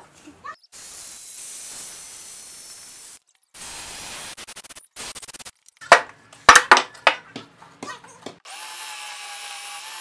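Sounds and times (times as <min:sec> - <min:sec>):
jigsaw cutting wood: 0:08.4 - 0:10.0.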